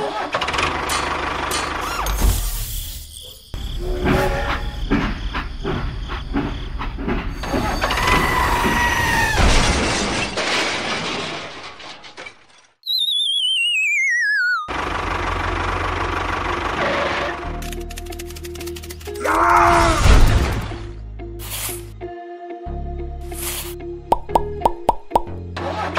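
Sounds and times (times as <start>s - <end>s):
knocks and crashes: 3.9s - 12.8s
falling wavering whistle: 12.8s - 14.7s.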